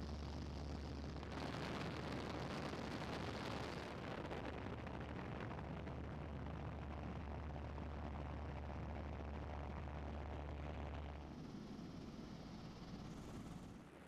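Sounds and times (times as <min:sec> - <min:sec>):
light aircraft engine drone: 0:00.0 - 0:14.0.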